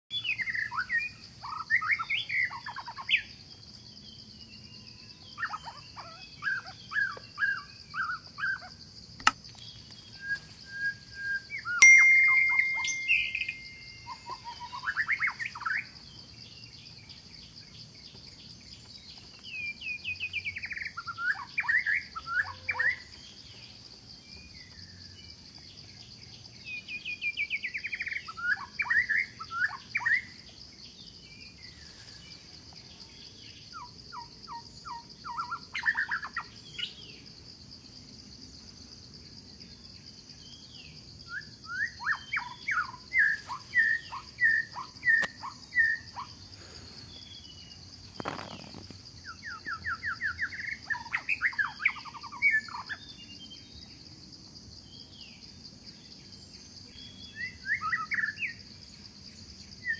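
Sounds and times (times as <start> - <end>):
birds chirping: 3.7 - 25.8
sharp click: 9.2 - 9.4
held whistled note: 10.7 - 14.6.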